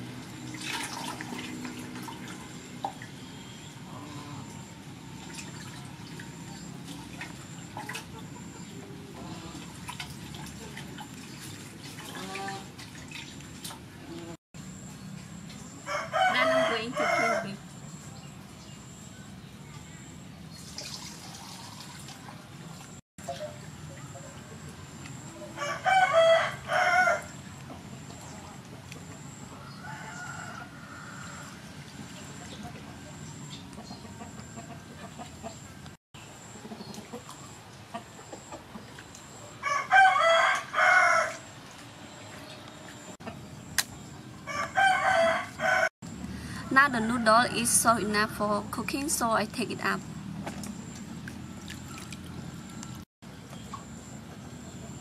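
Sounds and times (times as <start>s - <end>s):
water splashing in a metal basin: 0.0s - 3.2s, 4.4s - 8.4s, 9.2s - 14.3s, 20.6s - 25.2s, 50.1s - 53.0s
rooster crowing: 15.8s - 17.6s, 25.4s - 27.4s, 29.5s - 31.6s, 39.6s - 41.5s, 44.4s - 45.9s.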